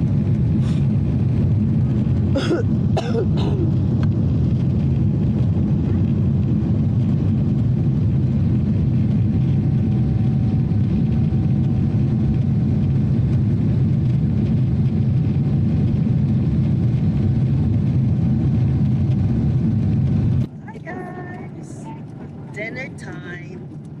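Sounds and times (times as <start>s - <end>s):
jet engines and airflow drone: 0.0s - 24.0s
faint steady hum: 20.3s - 24.0s.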